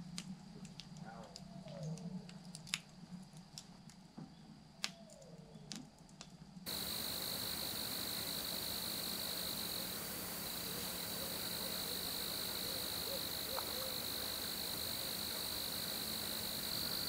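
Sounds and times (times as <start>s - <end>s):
constant hiss: 0.0s - 17.0s
crickets trilling: 6.7s - 17.0s.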